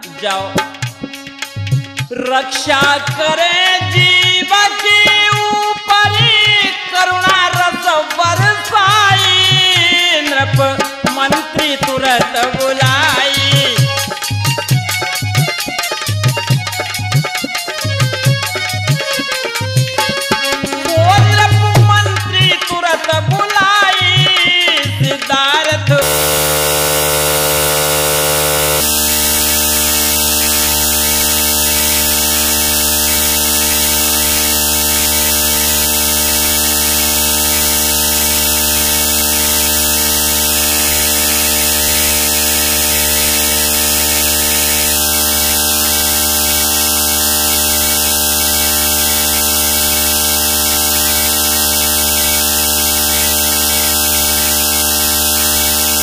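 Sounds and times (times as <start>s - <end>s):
electrical hum and hiss: 26.0s - 29.4s.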